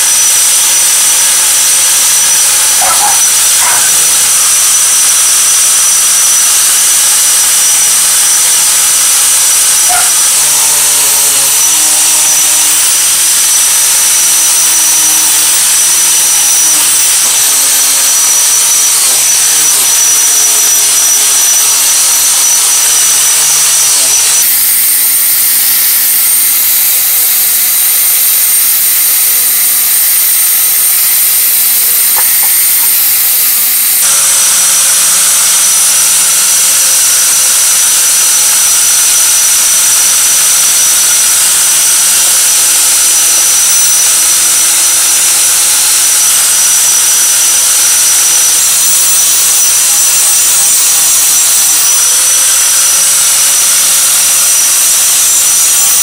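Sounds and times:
wire brush hissing on metal: 0.0 - 35.4
angle grinder motor whine: 0.0 - 56.0.

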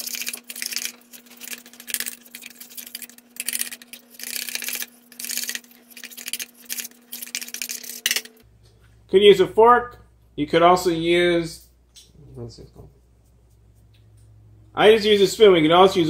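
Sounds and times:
metal spoon scraping bowl: 0.0 - 8.3
faint steady hum: 0.0 - 16.0.

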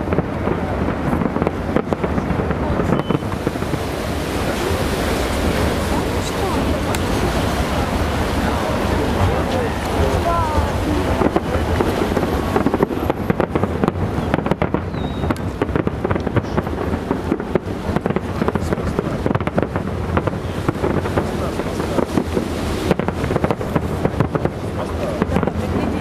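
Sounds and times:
fireworks bangs and crackles: 0.0 - 26.0.

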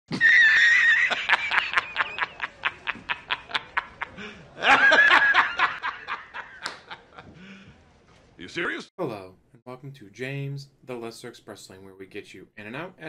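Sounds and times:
man laughing hard: 0.1 - 7.3.

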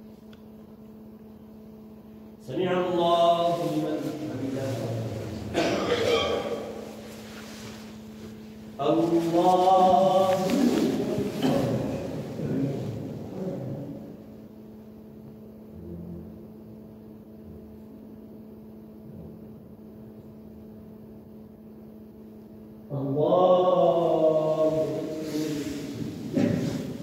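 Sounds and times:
steady low hum: 0.0 - 27.0
man chanting prayer: 2.3 - 14.6, 22.9 - 27.0.

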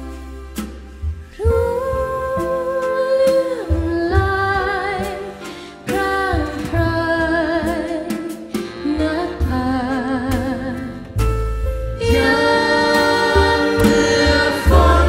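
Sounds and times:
jazz band playing: 0.0 - 15.0
woman singing a slow ballad: 1.4 - 11.1.

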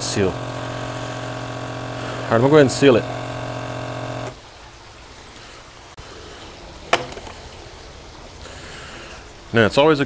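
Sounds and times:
vacuum sealer pump humming: 0.0 - 4.4.

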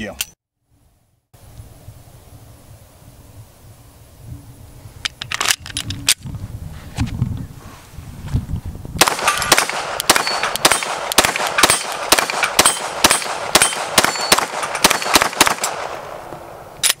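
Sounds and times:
rapid pistol shots: 9.0 - 16.2.

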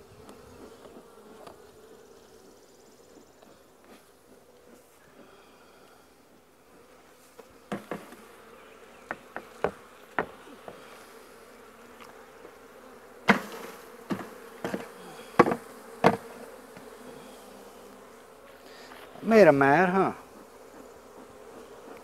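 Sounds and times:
honey bees buzzing: 0.0 - 22.0
plastic lid knocking on hive boxes: 7.7 - 8.2, 9.0 - 10.8, 13.3 - 16.9.

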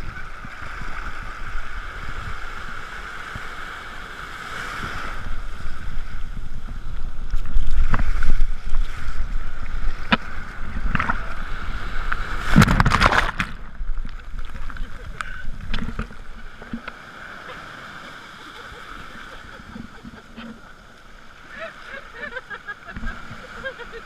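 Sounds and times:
wind on microphone: 0.0 - 16.9
shallow surf sloshing: 0.0 - 24.0
water splashing: 4.8 - 24.0.

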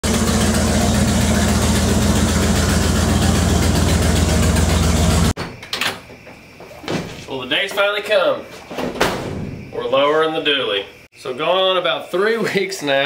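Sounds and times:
pickup truck engine idling: 0.0 - 5.4.

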